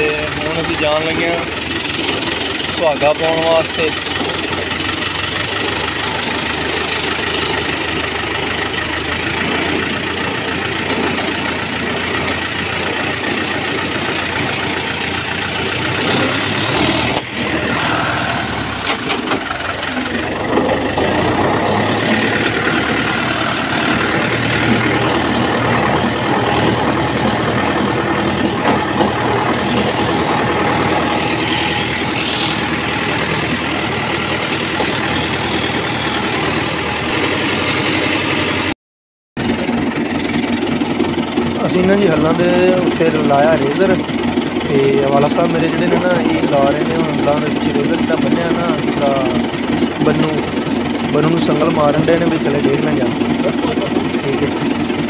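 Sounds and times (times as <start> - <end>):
tractor diesel engine running: 0.0 - 38.8, 39.4 - 55.0.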